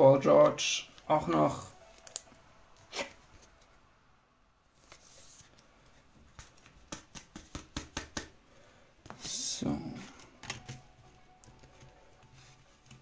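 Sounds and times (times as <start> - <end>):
cards rustling: 4.7 - 7.7
cards clicking and tapping: 6.2 - 8.4, 10.0 - 13.0.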